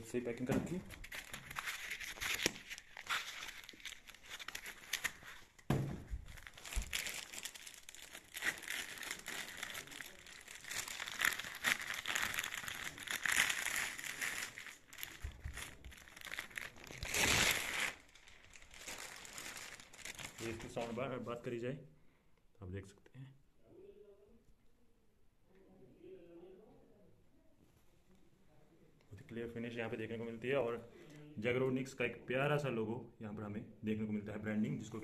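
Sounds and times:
plastic bag crinkling: 0.8s - 21.2s.

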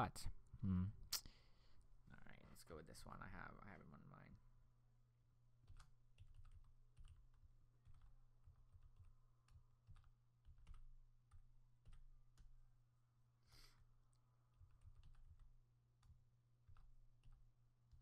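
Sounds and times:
faint keyboard typing: 5.6s - 13.0s, 13.8s - 18.0s.

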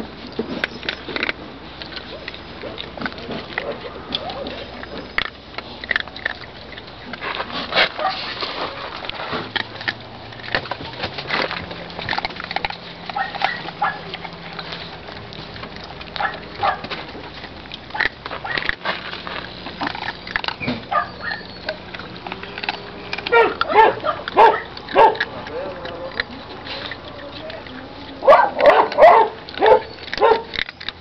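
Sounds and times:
dog snuffling and licking: 0.0s - 31.0s
handling clicks and rustles: 0.0s - 31.0s
dog whining: 3.6s - 5.4s, 11.9s - 15.0s, 19.8s - 31.0s.

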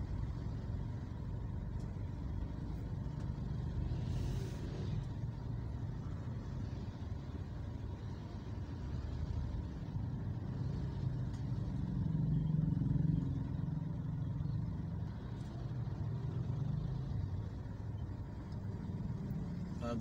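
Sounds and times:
car and motorcycle engines: 0.0s - 20.0s.

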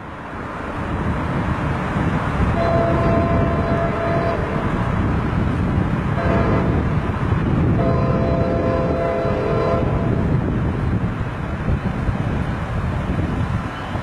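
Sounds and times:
diesel locomotive rumble: 0.0s - 14.0s
multi-tone train horn: 2.6s - 4.8s, 6.2s - 7.1s, 7.7s - 10.3s.

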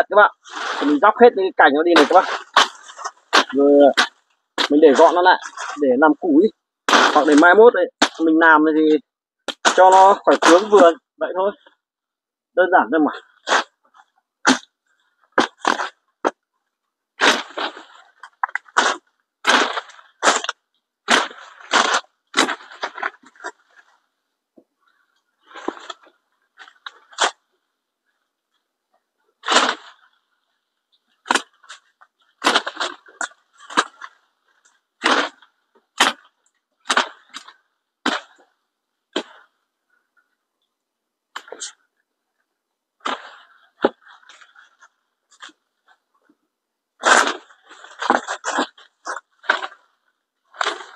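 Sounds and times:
leaves rustling: 0.0s - 8.6s, 17.2s - 24.0s
branches cracking and snapping: 1.8s - 5.9s, 6.9s - 8.4s, 9.5s - 10.9s, 13.4s - 16.4s, 17.2s - 24.0s, 29.4s - 30.4s, 31.1s - 38.5s, 47.0s - 50.9s
chopping into wood: 6.9s - 8.3s, 9.5s - 10.8s.

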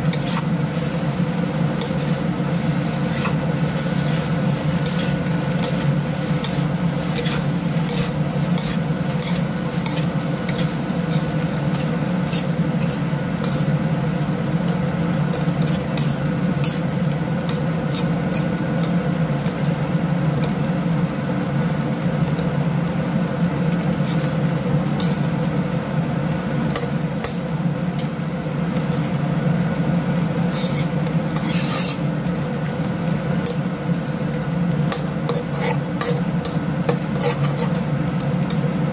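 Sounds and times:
spatula scraping wok: 0.0s - 20.6s, 23.8s - 25.6s, 26.7s - 29.2s, 30.4s - 32.2s, 34.9s - 38.8s
rice sizzling: 0.0s - 38.9s.

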